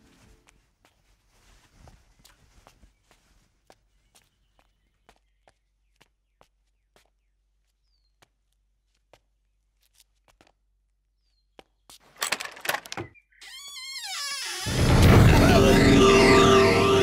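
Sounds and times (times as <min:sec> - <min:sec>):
footsteps on bare floor: 0:00.0 - 0:10.6
wooden door rattling: 0:12.1 - 0:15.0
music: 0:14.7 - 0:17.0.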